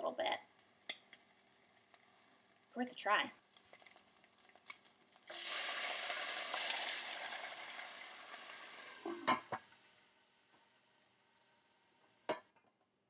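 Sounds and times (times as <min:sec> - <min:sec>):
water sizzling in hot skillet: 0:00.0 - 0:12.4.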